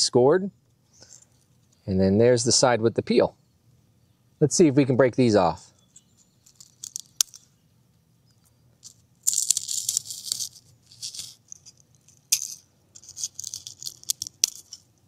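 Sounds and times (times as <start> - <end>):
charcoal crumbling between fingers: 5.8 - 7.5, 8.8 - 15.0.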